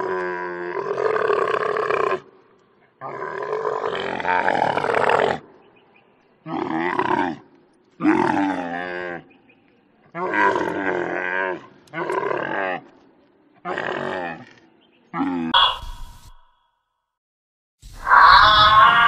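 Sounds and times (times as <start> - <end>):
camel calling: 13.6 - 16.4, 18.0 - 19.0.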